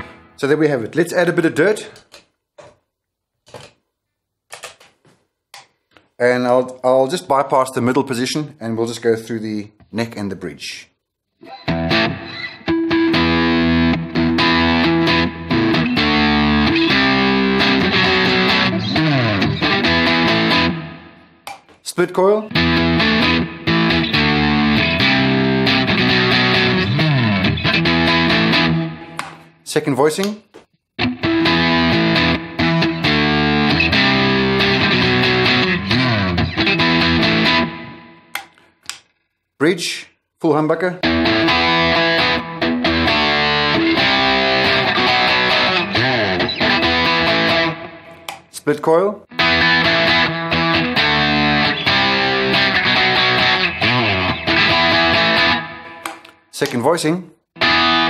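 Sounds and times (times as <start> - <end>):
overdriven electric guitar chords: 0.0 - 0.4, 11.5 - 21.4, 22.5 - 29.4, 31.0 - 38.4, 41.0 - 48.3, 49.3 - 56.3, 57.6 - 58.0.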